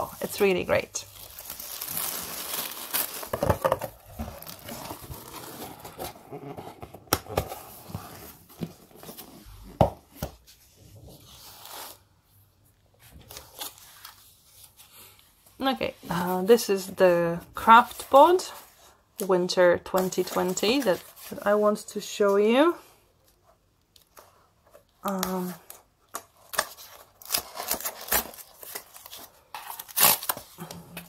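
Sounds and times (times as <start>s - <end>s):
tissue paper rustling: 0.0s - 6.4s.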